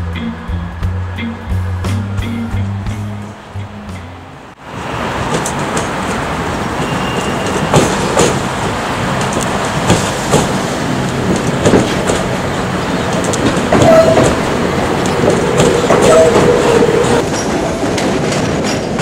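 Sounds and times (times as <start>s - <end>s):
train running rumble and hum: 0.0s - 19.0s
train wheels clacking over joints: 5.3s - 19.0s.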